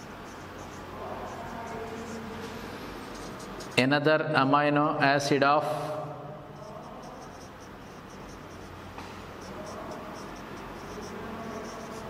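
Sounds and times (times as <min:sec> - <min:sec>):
marker squeaking on whiteboard: 0:00.0 - 0:03.8, 0:06.6 - 0:12.0.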